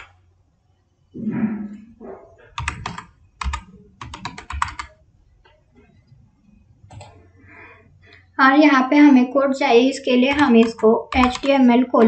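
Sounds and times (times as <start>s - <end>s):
typing on keyboard: 2.5s - 6.2s, 6.9s - 7.2s, 10.2s - 12.0s.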